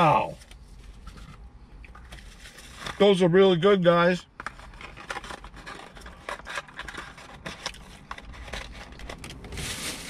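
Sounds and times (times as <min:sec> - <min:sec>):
cardboard box crinkling: 0:04.6 - 0:10.0.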